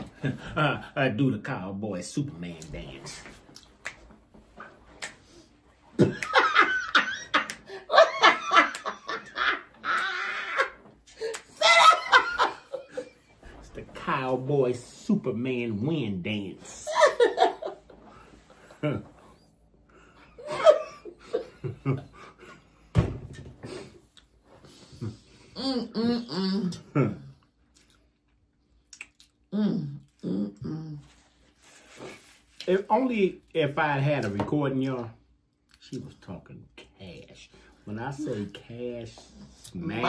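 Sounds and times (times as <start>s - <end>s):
woman laughing hard: 6.0s - 13.2s, 16.9s - 17.8s, 20.4s - 22.1s.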